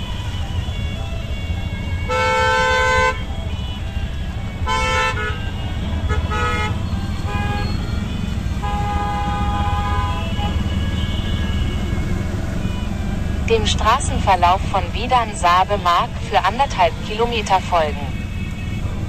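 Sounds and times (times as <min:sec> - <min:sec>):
auto-rickshaw engine running: 0:00.0 - 0:19.0
vehicle horns honking: 0:00.0 - 0:19.0.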